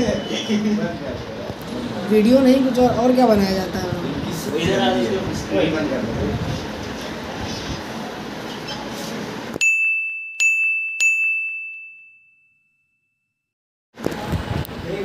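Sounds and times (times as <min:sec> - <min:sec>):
high bell-like dings: 0:09.6 - 0:13.5.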